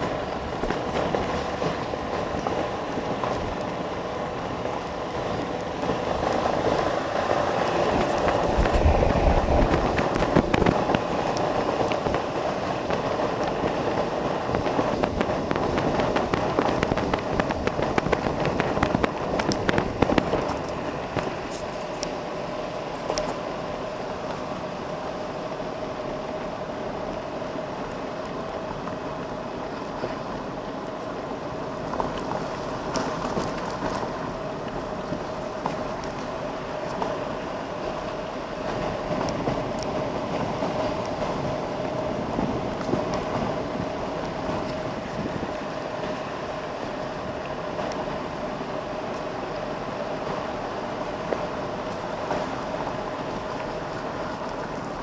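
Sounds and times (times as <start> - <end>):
cart rattling over bumps: 0.0 - 22.0.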